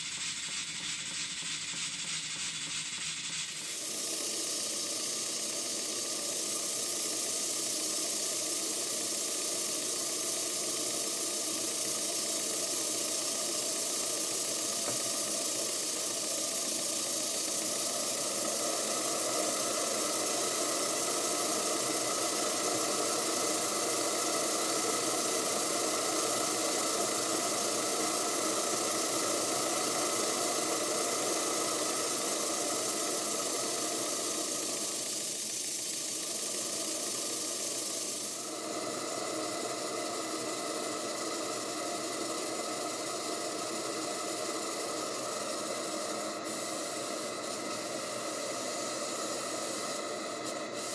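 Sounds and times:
steam engine running: 0:00.0 - 0:50.9
steam hissing: 0:00.0 - 0:50.9.

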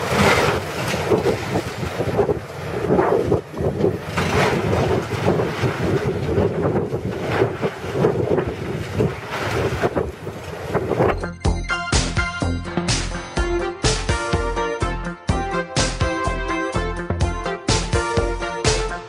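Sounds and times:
falling debris crashing: 0:00.0 - 0:02.0
excavator tearing concrete: 0:00.0 - 0:02.4, 0:03.9 - 0:10.1
wind buffeting microphone: 0:00.0 - 0:11.4
music: 0:11.0 - 0:19.0.

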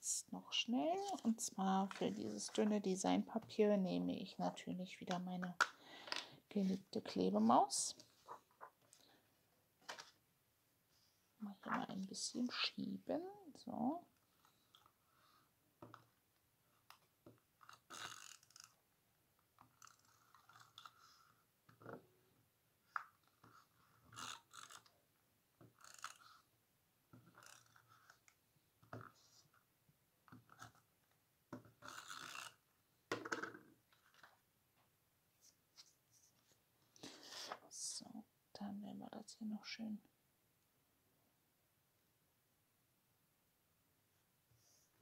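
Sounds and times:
tape runner rolling on paper: 0:17.6 - 0:18.8, 0:19.6 - 0:21.0, 0:23.5 - 0:24.9, 0:25.6 - 0:26.3, 0:27.2 - 0:28.2, 0:31.8 - 0:32.6.

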